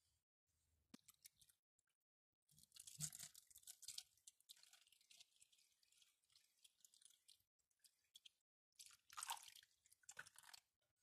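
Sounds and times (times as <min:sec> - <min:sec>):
liquid trickling into plastic tray: 0:02.6 - 0:10.7.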